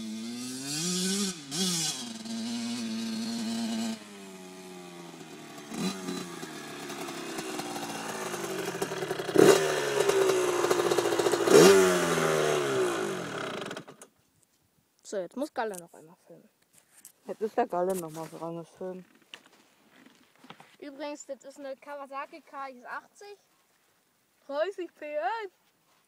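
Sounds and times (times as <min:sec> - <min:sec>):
two-stroke motorcycle engine revving: 0:00.0 - 0:14.1.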